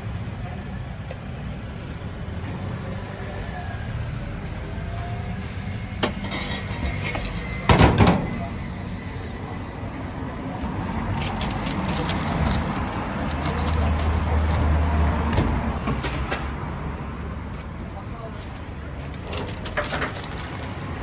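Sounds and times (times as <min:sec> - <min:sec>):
busy background noise: 0:00.0 - 0:21.0
wrapping paper rustling: 0:11.1 - 0:15.2, 0:19.3 - 0:21.0.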